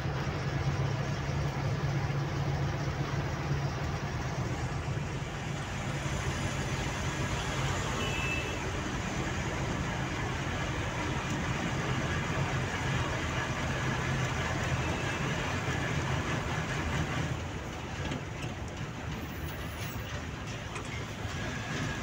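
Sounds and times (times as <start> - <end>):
road noise: 0.0 - 22.0
truck engine droning: 0.0 - 22.0.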